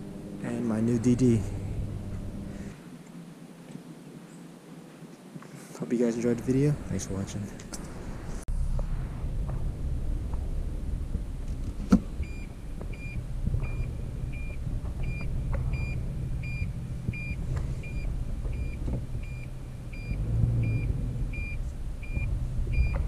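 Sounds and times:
truck engine running low: 0:00.0 - 0:02.7, 0:08.5 - 0:23.0
reverse warning beeps: 0:12.2 - 0:23.0.

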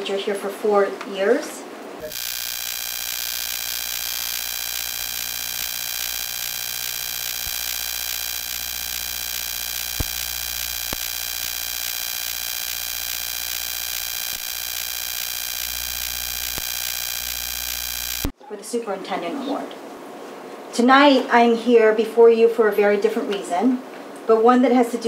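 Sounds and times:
electrical hiss and buzz: 0:02.0 - 0:18.3
faint clicks: 0:02.0 - 0:18.3.

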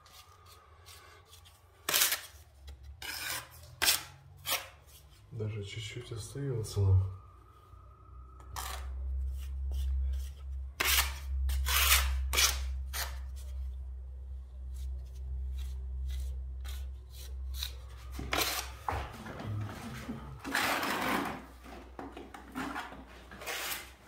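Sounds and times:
metal tool scraping render: 0:03.0 - 0:04.9, 0:09.7 - 0:13.2, 0:15.6 - 0:18.8, 0:20.4 - 0:21.5, 0:23.4 - 0:24.0.

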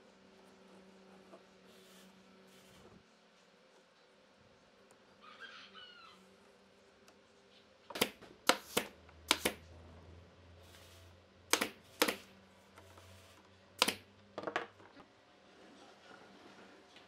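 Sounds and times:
nail gun firing: 0:07.9 - 0:09.6, 0:11.5 - 0:12.2, 0:13.8 - 0:14.0.

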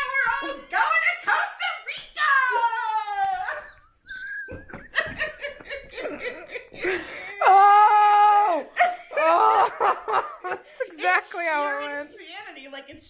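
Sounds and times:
women laughing: 0:03.1 - 0:07.8, 0:08.5 - 0:12.0.

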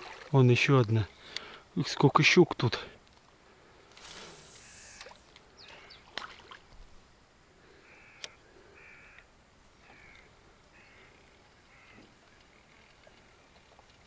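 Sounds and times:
bird calling faintly: 0:04.0 - 0:06.6, 0:07.6 - 0:13.8.

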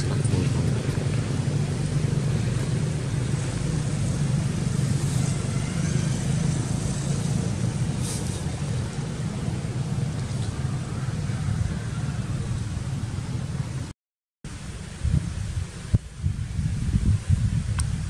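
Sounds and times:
traffic rumble: 0:00.0 - 0:13.9, 0:14.5 - 0:18.0.

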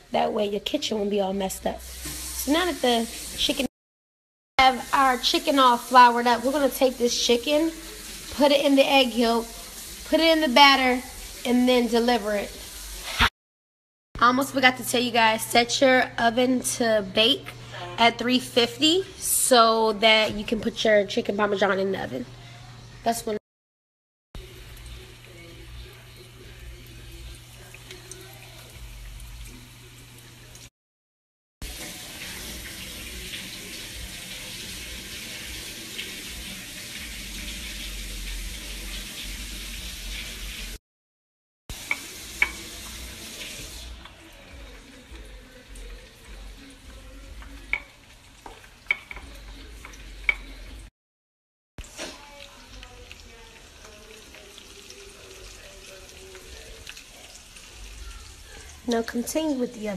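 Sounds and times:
chicken frying in oil: 0:00.1 - 0:03.7, 0:04.6 - 0:13.3, 0:24.4 - 0:30.7, 0:31.6 - 0:40.8, 0:41.7 - 0:50.9, 0:51.8 - 0:59.9.

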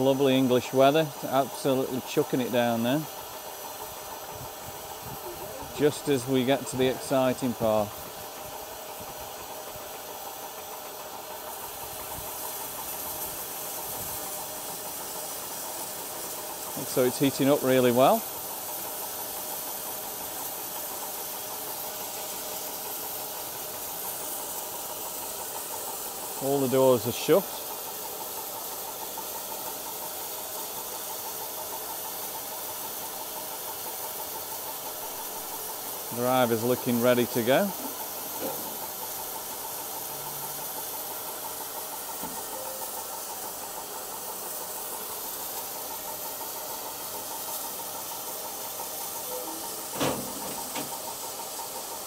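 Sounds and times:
steam locomotive hissing: 0:00.0 - 0:52.0.

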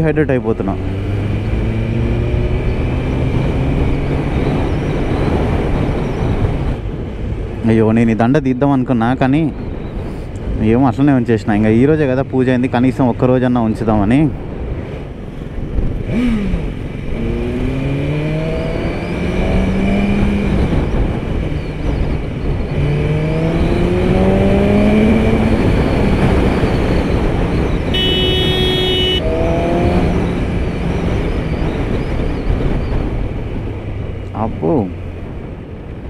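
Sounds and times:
wind rushing over microphone: 0:00.0 - 0:36.0
motorcycle engine accelerating: 0:00.6 - 0:06.6, 0:15.6 - 0:34.3
vehicle horn: 0:27.9 - 0:29.3.

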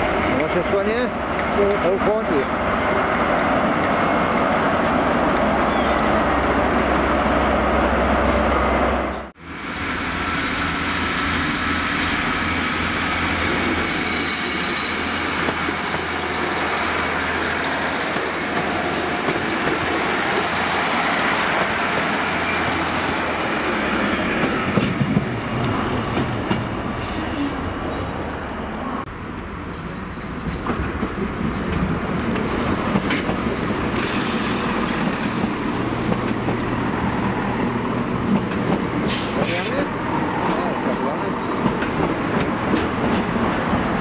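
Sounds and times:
train rumbling on rails: 0:00.0 - 0:44.0
train wheel squeal: 0:13.8 - 0:17.2.

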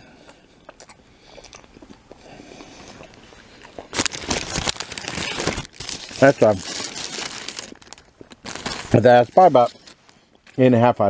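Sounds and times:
paper wrapper crinkling: 0:03.1 - 0:10.6.

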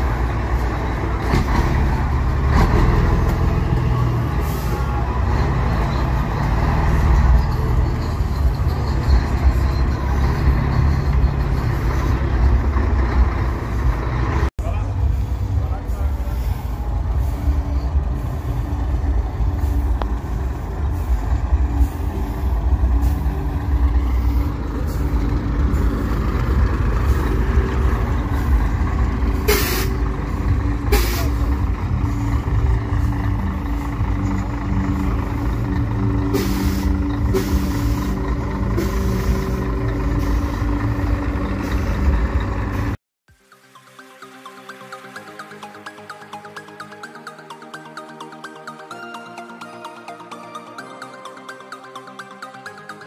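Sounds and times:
diesel truck engine running: 0:00.0 - 0:43.0
air brake hisses: 0:29.4 - 0:30.0, 0:30.9 - 0:31.6, 0:36.3 - 0:38.2.

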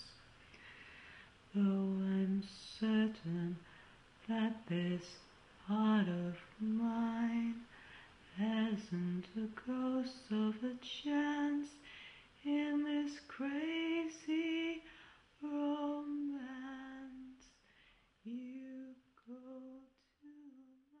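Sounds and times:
woman singing unaccompanied: 0:01.5 - 0:17.6, 0:18.2 - 0:21.0.

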